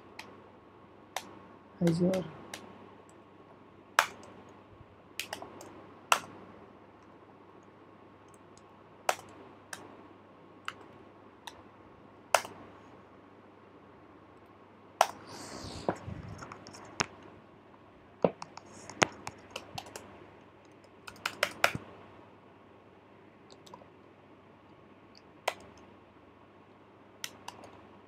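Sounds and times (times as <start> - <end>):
computer keyboard typing: 18.3 - 20.1, 20.7 - 21.8, 23.5 - 23.8, 27.2 - 27.8.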